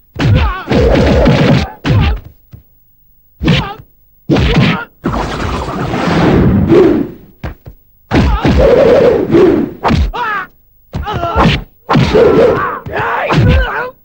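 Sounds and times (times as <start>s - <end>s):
punch and kick thuds: 0.1s - 2.6s, 3.4s - 4.9s, 7.4s - 9.0s, 9.6s - 10.2s, 10.9s - 13.8s
voices crying out: 10.1s - 14.0s.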